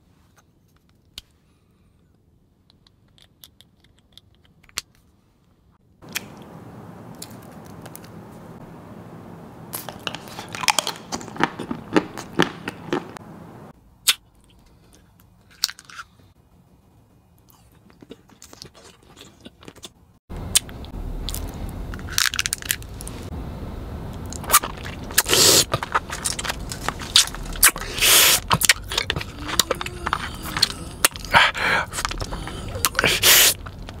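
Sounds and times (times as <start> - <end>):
steady low hum: 6.0 - 14.0, 20.3 - 34.0
chocolate being bitten: 9.7 - 13.2, 24.4 - 34.0
closed-mouth chewing: 9.7 - 13.3, 24.5 - 34.0.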